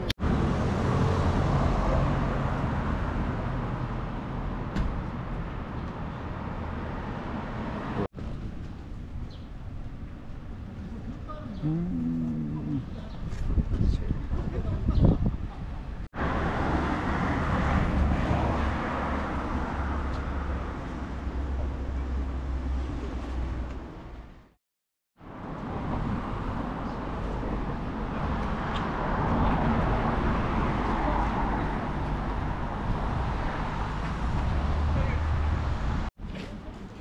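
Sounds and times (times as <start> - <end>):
passing cars hum: 0.0 - 8.1, 16.2 - 24.2, 25.2 - 36.1.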